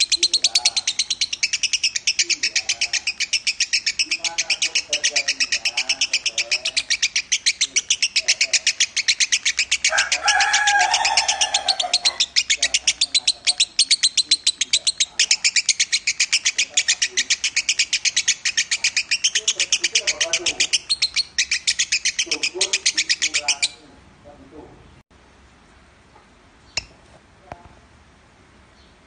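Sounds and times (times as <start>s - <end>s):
lovebird chattering trill: 0.0s - 23.9s.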